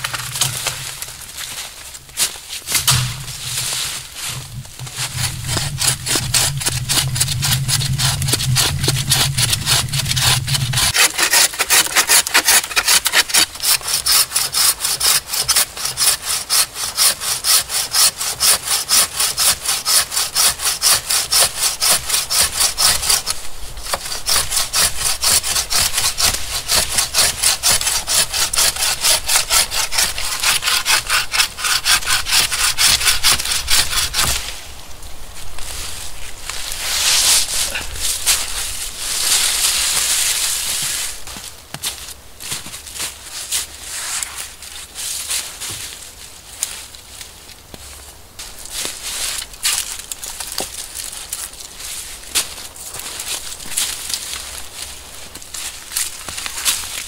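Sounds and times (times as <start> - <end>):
low steady hum: 0.0 - 11.0
hand saw cutting wood: 2.6 - 34.5.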